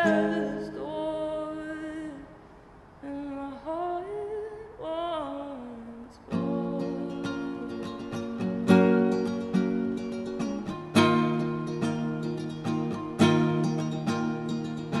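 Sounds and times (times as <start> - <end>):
acoustic guitar strummed: 0.0 - 1.0, 6.3 - 15.0
person singing: 0.0 - 2.3, 3.0 - 9.0.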